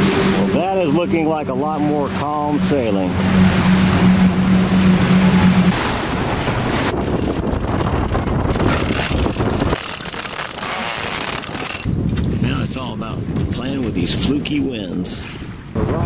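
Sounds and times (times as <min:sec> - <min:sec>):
boat engine drone: 0:00.0 - 0:11.9
rushing wind and water: 0:00.0 - 0:16.0
wind buffeting microphone: 0:00.0 - 0:16.0.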